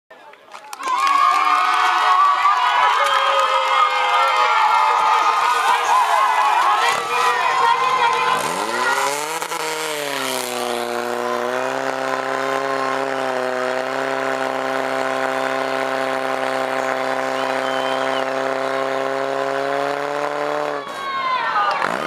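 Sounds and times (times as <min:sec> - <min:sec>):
pump engine running hard: 0:05.7 - 0:20.8.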